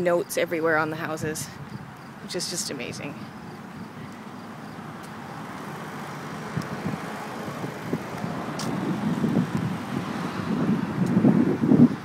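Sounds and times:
vehicle passing: 0:02.9 - 0:12.0.

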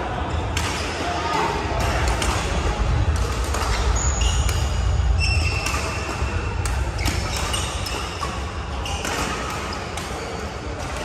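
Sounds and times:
rackets hitting shuttlecocks: 0:00.5 - 0:01.0, 0:01.7 - 0:11.0
shoes squeaking on floor: 0:07.0 - 0:09.8.

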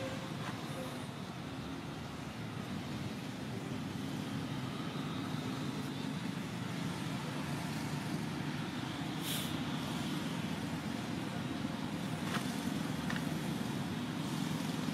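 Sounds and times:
short burst of hiss: 0:09.2 - 0:09.6.

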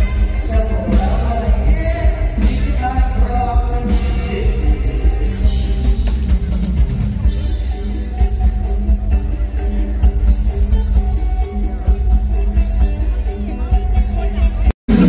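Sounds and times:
person singing: 0:00.0 - 0:06.1
band music through loudspeakers: 0:00.0 - 0:15.0
heavy bass beat: 0:00.0 - 0:15.0.

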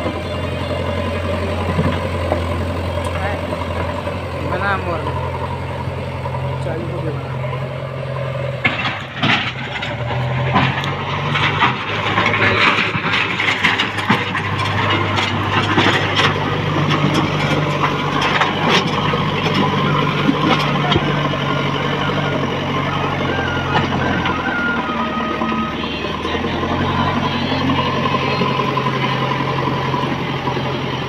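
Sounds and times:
diesel engine running under load: 0:00.0 - 0:31.0.

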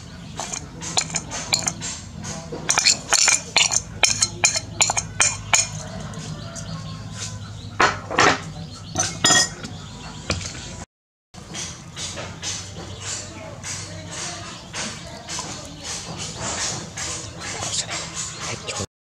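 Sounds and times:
clinks and taps on steel bowl: 0:00.4 - 0:01.8, 0:02.6 - 0:05.8, 0:07.8 - 0:09.7.

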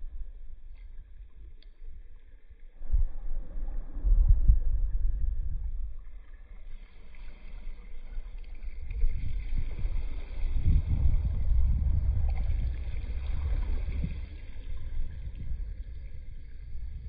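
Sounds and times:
wind buffeting microphone: 0:02.8 - 0:06.6, 0:08.7 - 0:17.0
water lapping at shore: 0:05.8 - 0:17.0.

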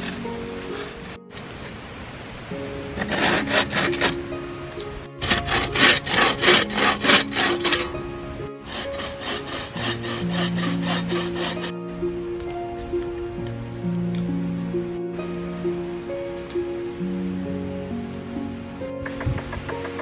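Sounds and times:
hand saw cutting wood: 0:00.0 - 0:01.2, 0:02.9 - 0:04.3, 0:05.2 - 0:08.0, 0:08.6 - 0:11.8
soft background music: 0:00.0 - 0:20.0.

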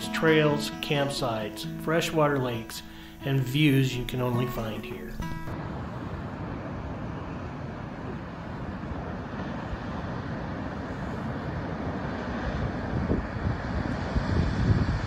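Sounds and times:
ocean surf breaking: 0:00.0 - 0:15.0
wind on microphone: 0:05.5 - 0:15.0.

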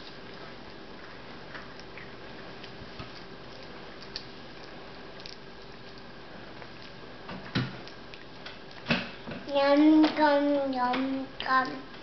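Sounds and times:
faint clicks and taps: 0:06.6 - 0:12.0.

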